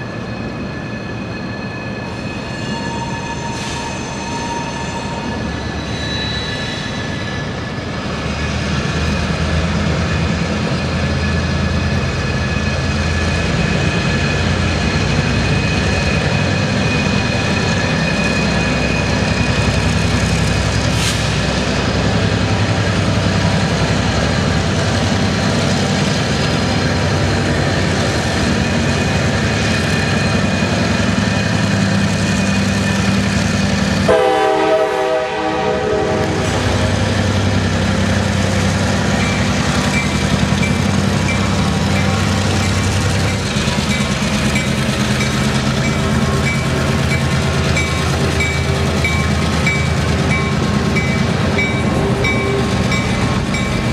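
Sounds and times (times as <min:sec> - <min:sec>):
diesel locomotive engine drone: 0:00.0 - 0:53.9
train horn blast: 0:34.0 - 0:36.5.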